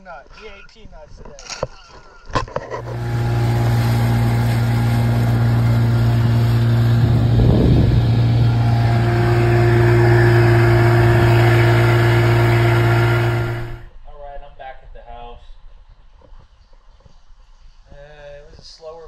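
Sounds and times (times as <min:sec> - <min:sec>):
outboard motor running: 0:02.7 - 0:13.9.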